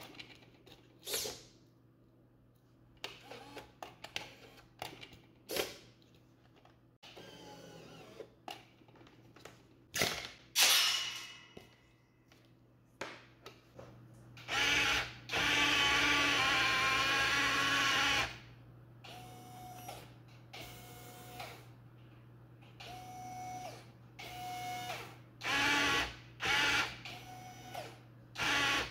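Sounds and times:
small electric motors whining: 0:07.1 - 0:08.3, 0:22.9 - 0:28.9.

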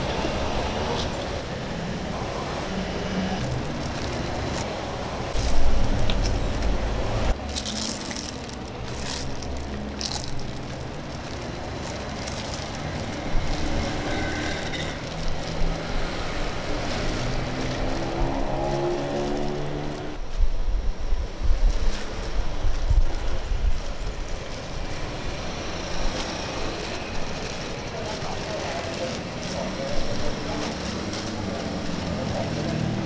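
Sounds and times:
road traffic passing: 0:00.0 - 0:33.0
engine accelerating: 0:08.6 - 0:20.2.

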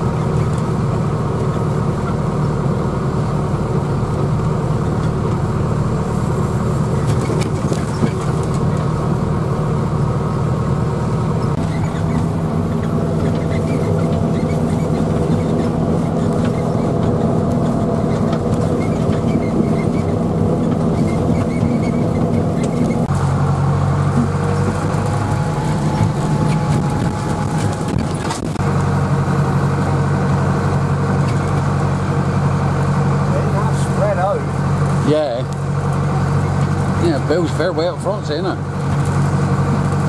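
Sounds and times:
tractor engine running: 0:00.0 - 0:40.0.

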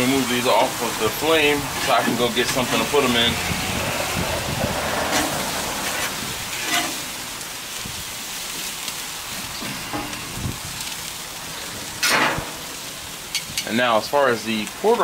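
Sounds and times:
burger patties sizzling on grill: 0:00.0 - 0:15.0
metal spatula scraping and clinking: 0:05.1 - 0:07.1.

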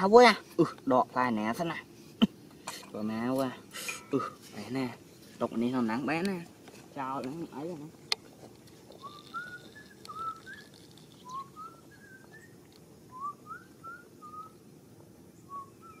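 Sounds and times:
faint background hiss: 0:00.0 - 0:16.0
person whistling a tune: 0:09.0 - 0:14.6.

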